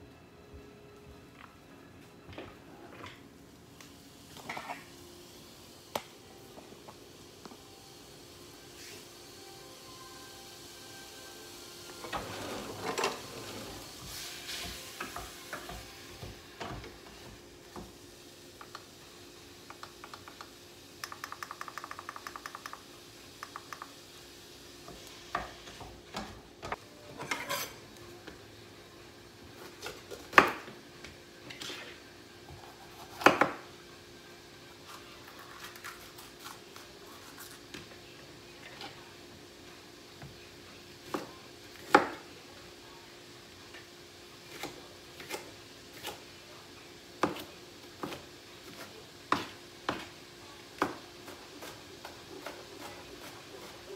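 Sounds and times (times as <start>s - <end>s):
sizzling: 3.2s - 53.9s
utensils and pans clattering: 12.0s - 13.8s, 27.1s - 27.8s
wooden spoon scraping a pan: 12.2s - 15.7s, 27.1s - 27.8s.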